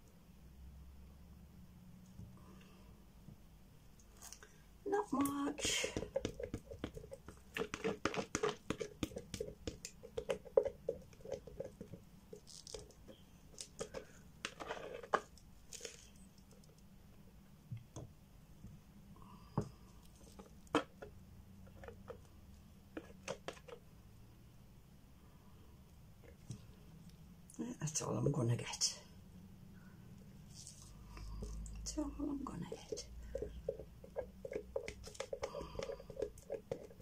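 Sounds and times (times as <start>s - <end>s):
stick scraping plastic jug: 5.2s - 16.2s, 32.5s - 37.0s.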